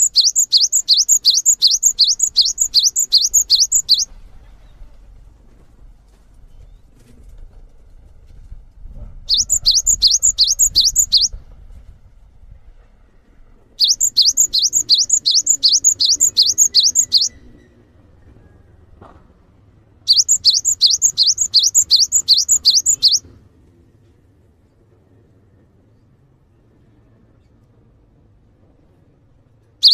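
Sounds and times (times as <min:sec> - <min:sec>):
bird whistled song: 0:00.0 - 0:04.1, 0:09.2 - 0:11.4, 0:13.8 - 0:17.7, 0:20.1 - 0:23.2.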